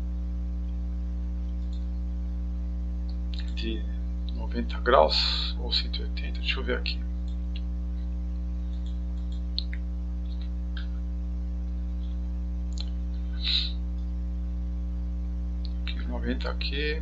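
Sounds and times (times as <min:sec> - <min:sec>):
electrical mains hum: 0:00.0 - 0:17.0
soft hiss: 0:11.6 - 0:14.1.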